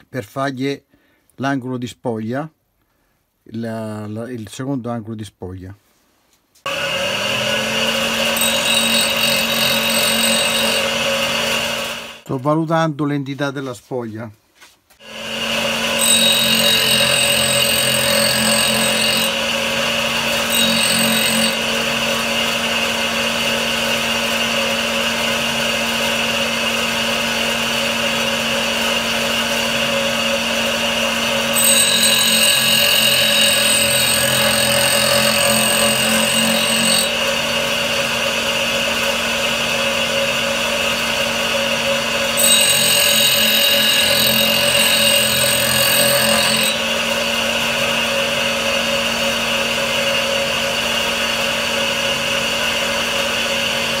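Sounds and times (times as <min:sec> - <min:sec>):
grinder motor running: 0:06.7 - 0:12.2, 0:15.0 - 0:53.9.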